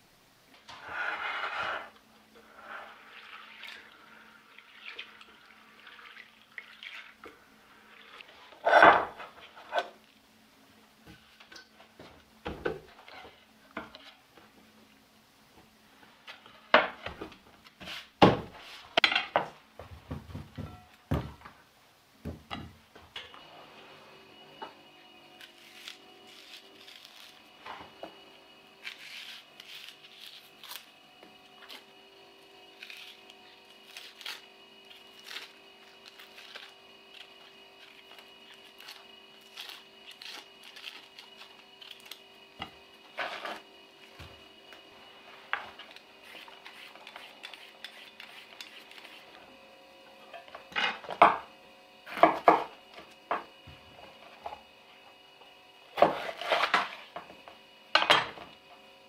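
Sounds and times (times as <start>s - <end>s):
knife scraping onion skin: 25.4s - 27.5s, 28.8s - 31.0s, 32.7s - 42.2s, 45.9s - 49.4s, 56.0s - 56.7s.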